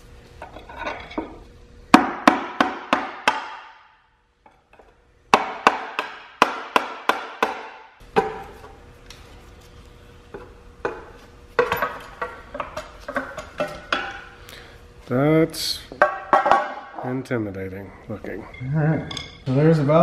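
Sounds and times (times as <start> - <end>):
hammer striking metal pry tool: 5.3 - 8.4.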